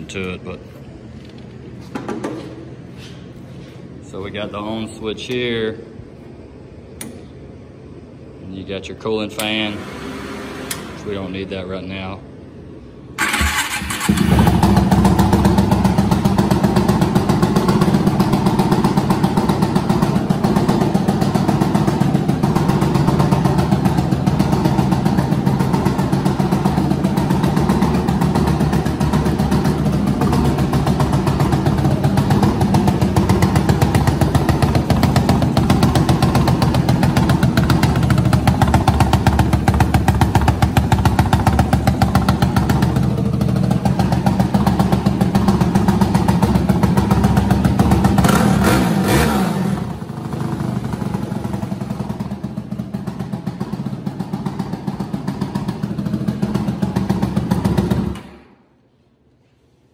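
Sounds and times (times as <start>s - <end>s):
kart engine idling: 13.2s - 58.2s.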